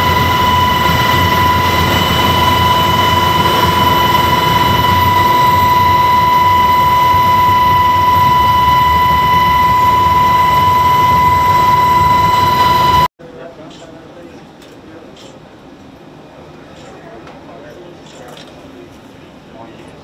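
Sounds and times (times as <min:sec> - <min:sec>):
high steady whine: 0:00.0 - 0:13.1
turboprop engine drone: 0:00.0 - 0:13.1.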